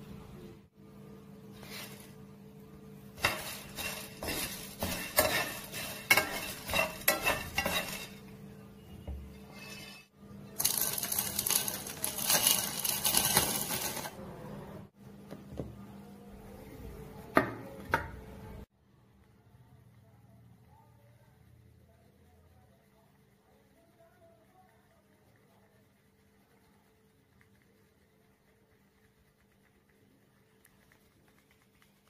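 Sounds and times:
spices rattling into pan: 0:03.1 - 0:08.3, 0:10.6 - 0:14.1
seeds pattering into bowl: 0:10.6 - 0:14.2.

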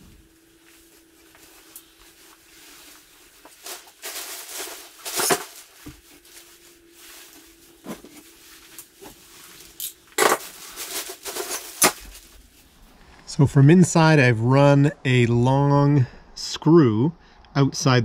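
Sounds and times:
insulation rustling and crinkling: 0:00.0 - 0:13.5.

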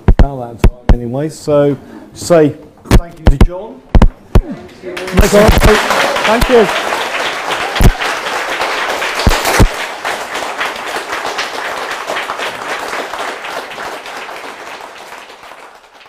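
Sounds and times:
loud thumps: 0:02.9 - 0:04.5
audience applauding: 0:04.6 - 0:16.0.

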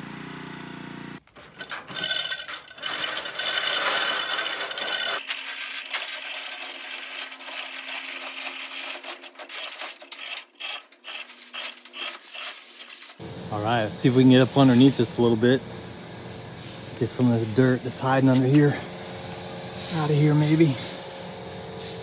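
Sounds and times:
pressure washer spraying: 0:00.0 - 0:22.0.

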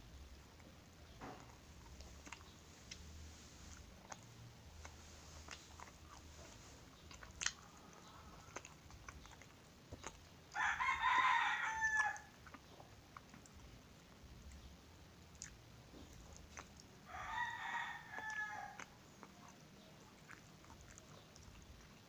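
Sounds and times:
chewing and mouth clicks: 0:00.3 - 0:22.0
rooster crowing: 0:10.5 - 0:12.4, 0:17.1 - 0:18.9.

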